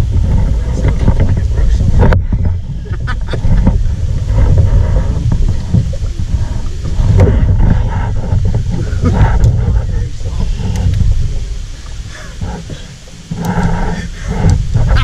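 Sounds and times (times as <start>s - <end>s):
knocks and rustles on logs: 0.0s - 15.0s
wind noise on microphone: 0.0s - 15.0s.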